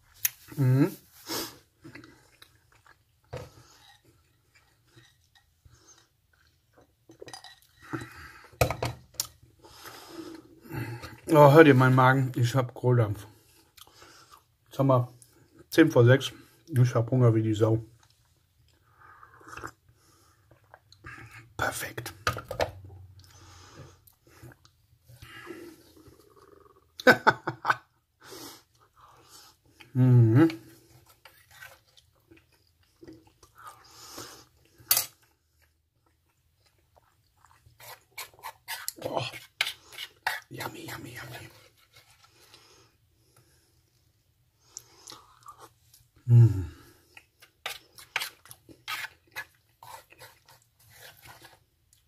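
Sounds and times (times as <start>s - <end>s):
chewing: 1.8s - 8.2s, 30.7s - 40.6s, 47.0s - 52.0s
person breathing: 9.6s - 11.2s, 23.2s - 24.5s.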